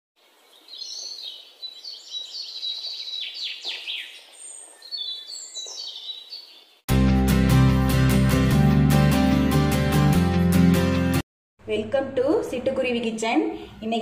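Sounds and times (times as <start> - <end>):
songbird warbling: 0.2 - 6.8.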